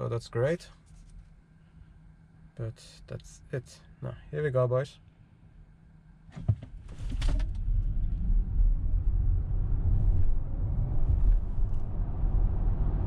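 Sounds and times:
road noise rumble from tyres: 0:06.3 - 0:13.0.

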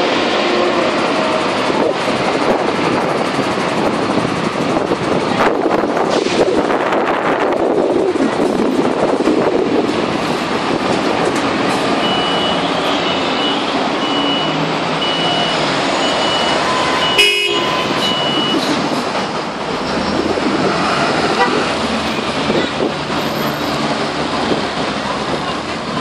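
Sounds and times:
diesel truck engine running: 0:00.0 - 0:26.0
warning beeper beeping: 0:12.0 - 0:18.6
horn toot: 0:16.8 - 0:18.1.

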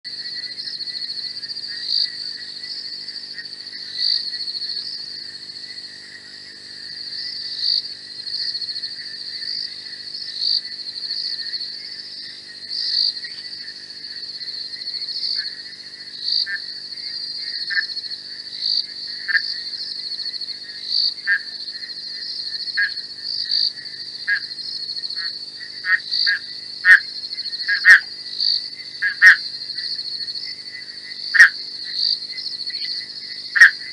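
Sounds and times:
frogs calling: 0:00.1 - 0:33.9
insects trilling: 0:00.1 - 0:33.9.

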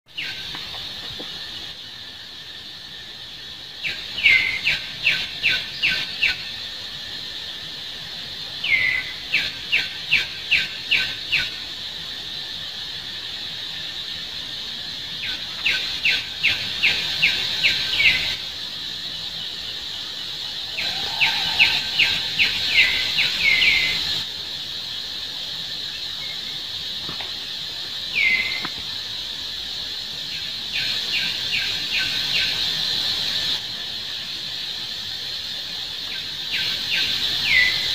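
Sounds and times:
high drone of insects: 0:00.1 - 0:37.9
bird chirping: 0:19.3 - 0:24.2, 0:28.1 - 0:28.7, 0:36.1 - 0:37.9.

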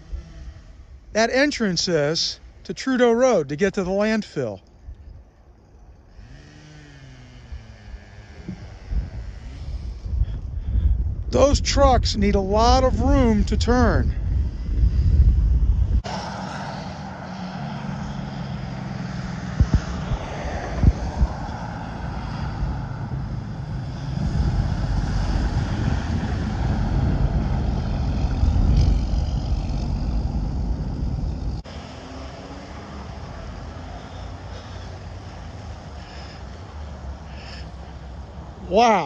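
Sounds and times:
dump truck passing: 0:15.4 - 0:38.9.

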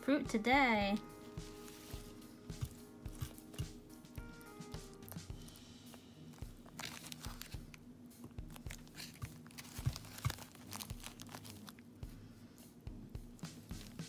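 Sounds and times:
plastic bag crinkling: 0:06.3 - 0:07.8, 0:08.5 - 0:11.8.

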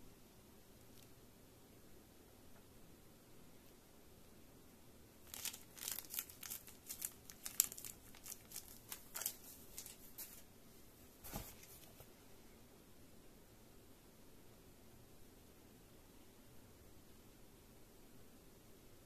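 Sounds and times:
plastic bag crinkling: 0:05.2 - 0:10.4.

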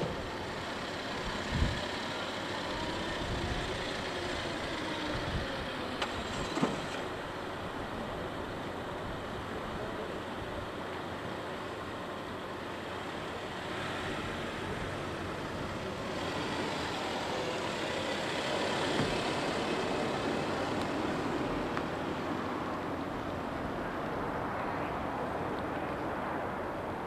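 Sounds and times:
tyres on tarmac: 0:00.0 - 0:27.0
car driving past: 0:13.5 - 0:23.4.

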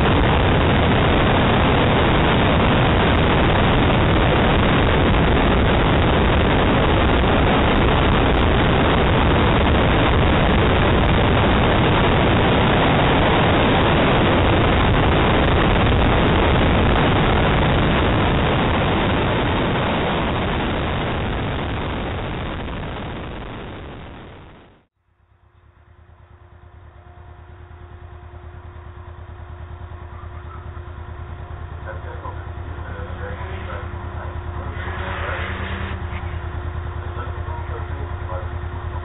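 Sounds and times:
wind on microphone: 0:00.0 - 0:24.8
car engine: 0:00.0 - 0:39.0
road noise: 0:00.0 - 0:39.0.

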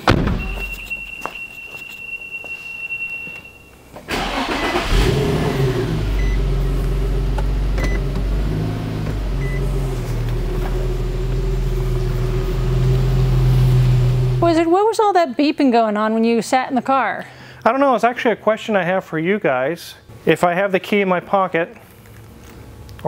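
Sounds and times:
car warning tone: 0:00.0 - 0:04.8, 0:05.5 - 0:09.9
short beeps: 0:00.4 - 0:03.8
car engine starting and idling: 0:04.0 - 0:14.7.

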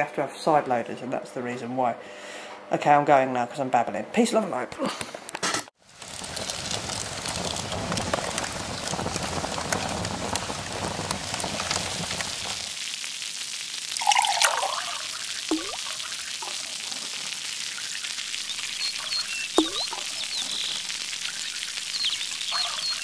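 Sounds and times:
heavy rain pouring: 0:05.8 - 0:23.0
water drips: 0:12.4 - 0:23.0.

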